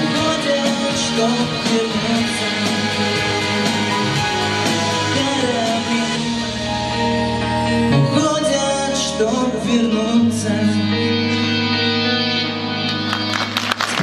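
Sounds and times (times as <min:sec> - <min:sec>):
man singing: 0:00.0 - 0:07.1, 0:07.8 - 0:12.0
guitar backing track: 0:00.0 - 0:14.0
applause: 0:12.9 - 0:14.0.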